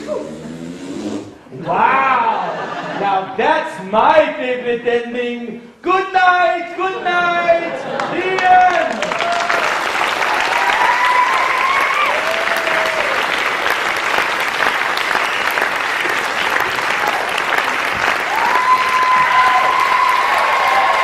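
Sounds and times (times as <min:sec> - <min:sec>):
audience applauding: 0:07.8 - 0:21.0
crowd calling out: 0:18.3 - 0:21.0.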